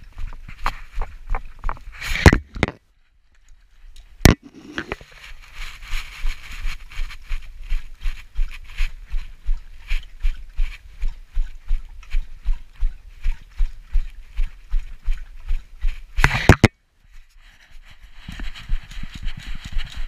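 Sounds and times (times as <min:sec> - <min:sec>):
dog lapping water: 0:07.8 - 0:16.0.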